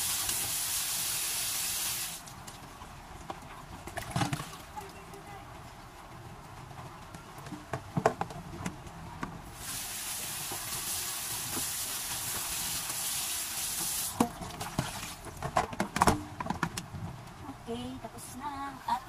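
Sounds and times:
tap water running into pot: 9.6s - 15.1s.

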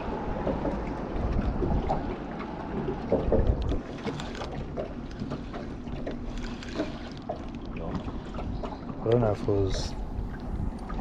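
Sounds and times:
wind rumble on microphone: 0.0s - 5.4s, 6.0s - 11.0s
water lapping at boat hull: 0.0s - 11.0s
fishing rod clicks: 3.6s - 4.6s, 6.3s - 7.7s.

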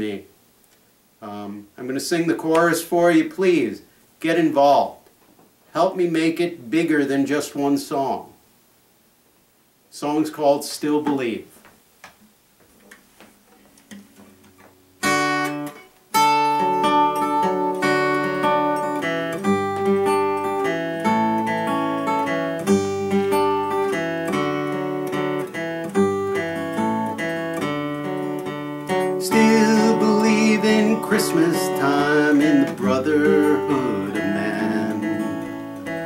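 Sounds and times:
acoustic guitar strumming: 13.5s - 36.0s.

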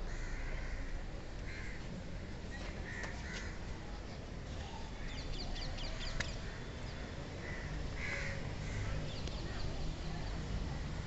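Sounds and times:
crows cawing: 0.0s - 1.8s, 2.8s - 3.6s, 7.4s - 9.0s.

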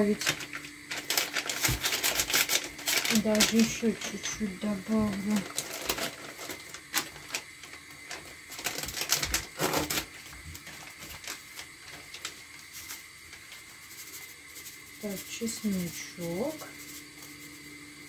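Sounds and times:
plastic crinkling: 0.0s - 17.8s
seasoning rattling from shaker: 11.0s - 17.8s.

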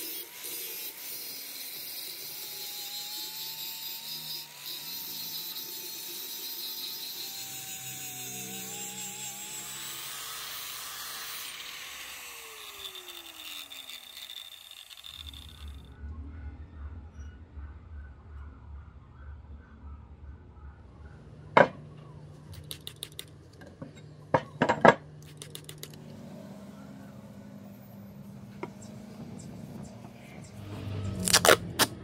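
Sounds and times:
angle grinder on metal: 0.0s - 15.9s, 22.6s - 23.3s, 24.7s - 30.6s.

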